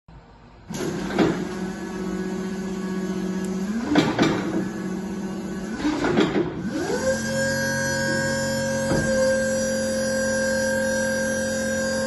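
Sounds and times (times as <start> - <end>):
electric motor whine: 6.6 - 12.0.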